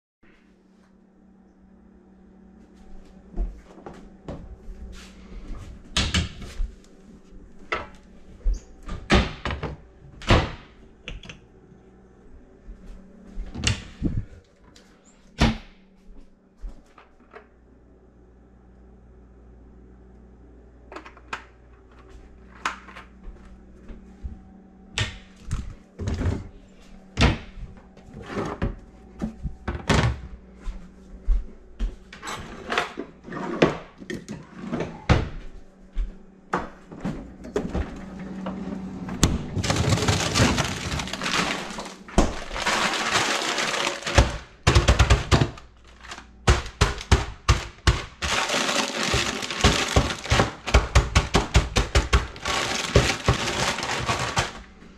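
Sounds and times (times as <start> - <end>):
drawer opening: 37.0 - 44.4
kitchen knocks and clatters: 39.2 - 54.7
plastic bag crinkling: 39.6 - 44.6, 47.6 - 50.9, 52.1 - 54.8.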